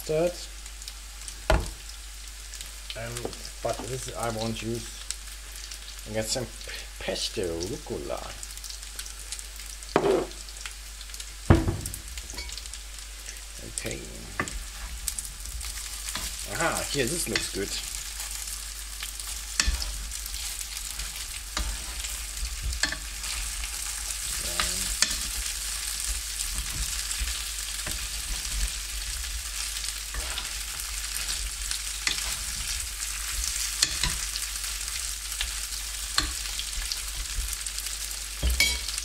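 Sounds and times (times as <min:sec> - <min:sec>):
food sizzling in a frying pan: 0:00.0 - 0:39.0
metal spoon scraping pan: 0:19.6 - 0:22.2, 0:30.1 - 0:31.4, 0:32.0 - 0:32.8, 0:33.4 - 0:34.4.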